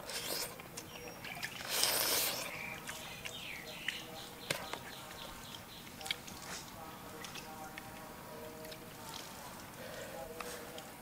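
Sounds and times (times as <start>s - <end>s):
man slurping meat: 0.0s - 0.6s, 1.4s - 3.3s
lip smacks: 0.0s - 8.1s
chewing: 0.0s - 10.9s
birds chirping: 0.7s - 9.1s.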